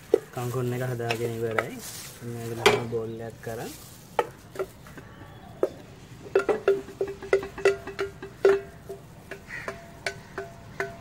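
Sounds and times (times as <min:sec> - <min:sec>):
utensil knocking in ringing pot: 0:05.6 - 0:11.0.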